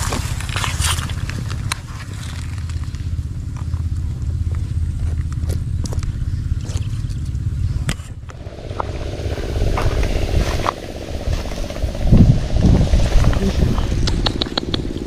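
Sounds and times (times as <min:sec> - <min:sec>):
motor engine running: 0:00.0 - 0:15.0
loud low thumps: 0:08.3 - 0:14.8
sharp clicks: 0:13.2 - 0:15.0.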